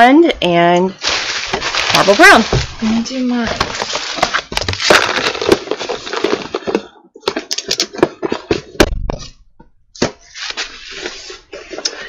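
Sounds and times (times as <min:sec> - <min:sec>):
rustling handling noise: 0:00.9 - 0:08.7.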